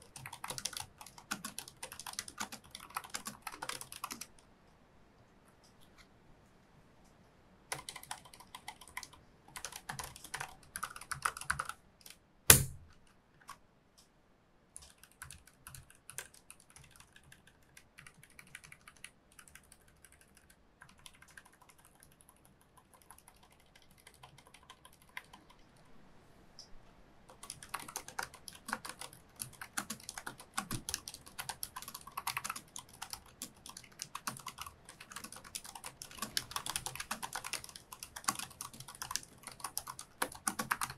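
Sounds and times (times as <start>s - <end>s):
keyboard typing: 0.0s - 4.4s, 7.7s - 13.6s, 14.8s - 25.8s, 27.3s - 40.9s
loud thump: 12.5s - 12.8s.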